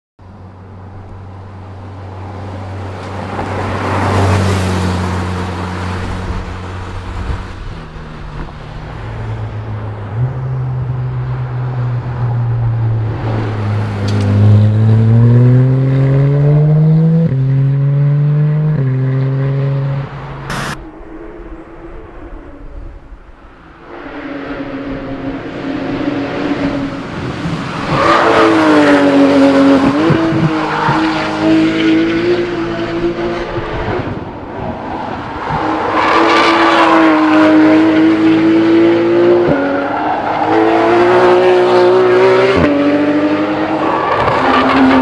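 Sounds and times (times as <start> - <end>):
sports car engine accelerating: 9.4 - 23.0.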